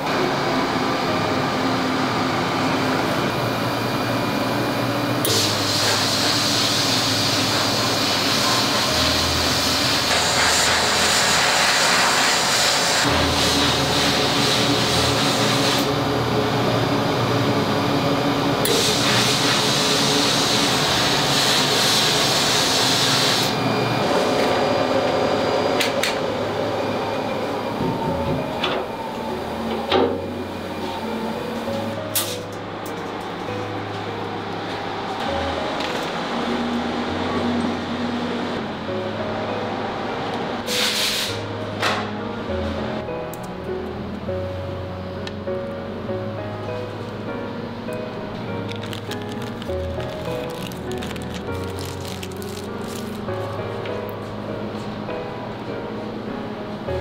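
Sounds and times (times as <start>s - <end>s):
air nozzle hissing: 40.7s - 41.4s.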